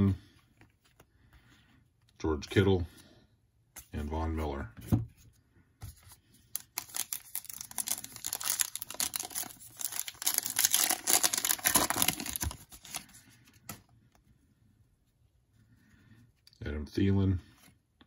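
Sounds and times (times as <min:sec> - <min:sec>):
foil wrapper crinkling and tearing: 0:06.6 - 0:13.2.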